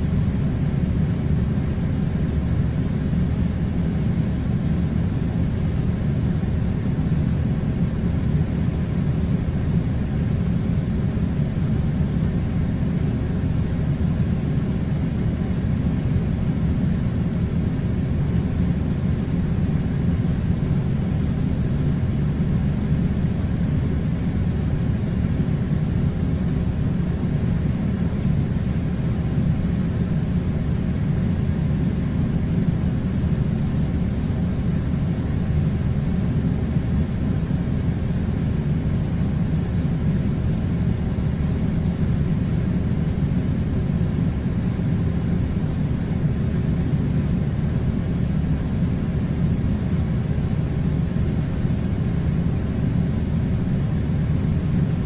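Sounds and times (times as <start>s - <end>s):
air conditioning unit low rumble: 0.0s - 55.0s.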